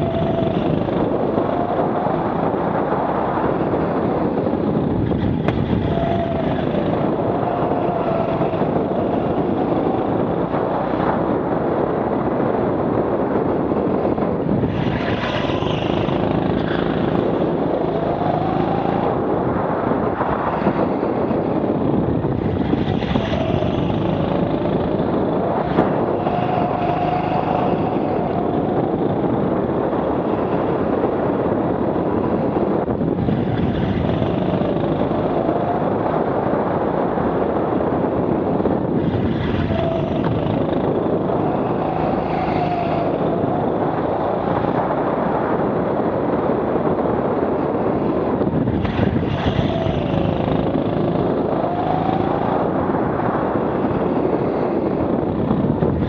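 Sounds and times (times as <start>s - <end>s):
go-kart motor revving: 0.0s - 2.5s, 5.0s - 11.1s, 14.7s - 19.3s, 22.3s - 29.3s, 33.2s - 35.9s, 39.0s - 44.7s, 48.7s - 52.8s
wind and tyre noise: 0.0s - 56.0s.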